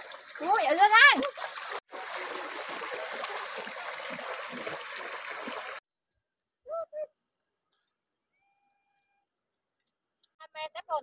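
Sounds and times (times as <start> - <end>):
water splashing around legs: 0.0 - 5.8.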